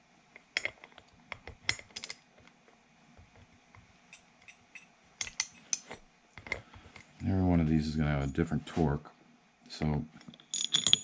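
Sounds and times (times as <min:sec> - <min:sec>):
metallic clinks: 0:04.1 - 0:06.6, 0:10.3 - 0:11.0.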